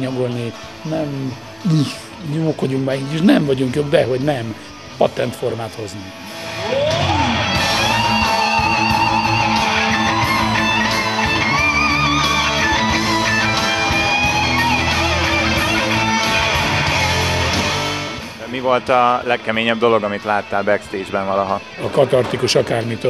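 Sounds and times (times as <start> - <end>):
electric guitar melody with vibrato: 6.0 - 18.5
rock band playing: 6.2 - 21.8.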